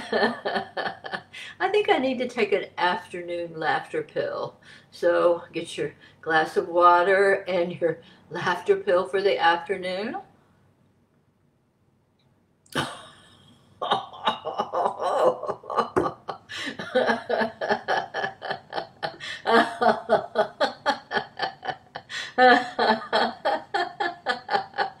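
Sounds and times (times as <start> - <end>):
woman laughing heartily: 0.0 - 1.4, 12.8 - 25.0.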